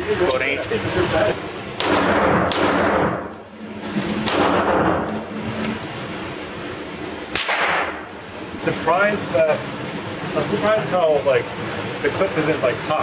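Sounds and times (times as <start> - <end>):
pistol shots indoors: 1.8 - 3.2, 4.2 - 5.0, 7.3 - 8.0.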